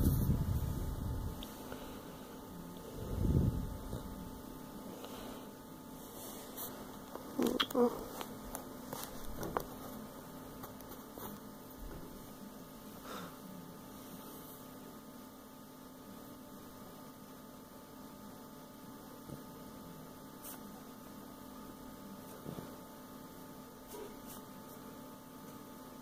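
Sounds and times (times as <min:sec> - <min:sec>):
faint electrical hum: 0:00.0 - 0:26.0.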